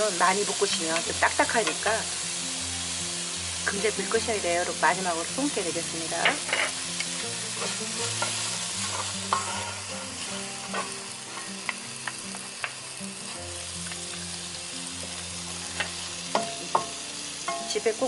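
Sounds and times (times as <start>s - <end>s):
light sizzle: 0.0s - 18.0s
wooden spatulas stirring in a pan: 7.5s - 12.2s.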